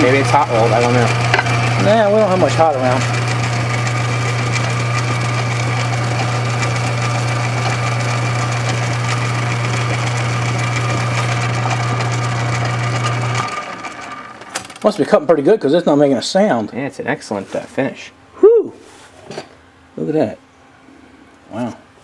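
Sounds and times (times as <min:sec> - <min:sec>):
lathe humming: 0:00.0 - 0:14.9.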